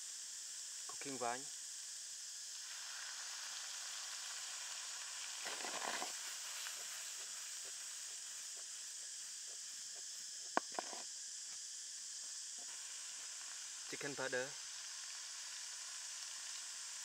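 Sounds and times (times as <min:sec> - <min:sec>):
vegetables sizzling in a frying pan: 0:00.0 - 0:17.0
vegetables shuffling in pan: 0:05.3 - 0:11.0.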